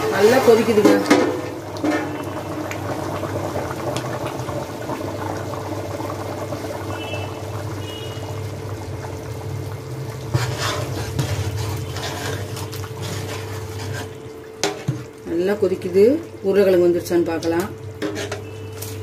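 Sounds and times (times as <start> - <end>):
gravy boiling and bubbling: 0.0 - 19.0.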